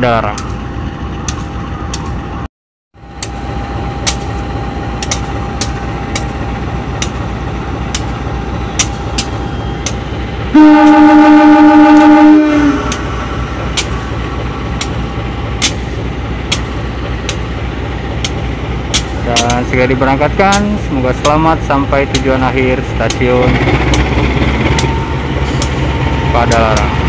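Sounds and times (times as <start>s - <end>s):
locomotive idling rumble: 0.0s - 27.0s
locomotive horn blast: 10.5s - 13.2s.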